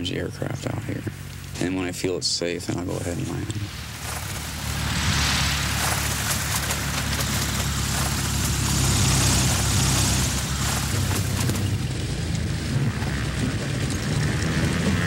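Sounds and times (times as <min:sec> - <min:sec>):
plane engine and propeller: 0:00.0 - 0:15.0
rushing hiss: 0:03.3 - 0:11.7.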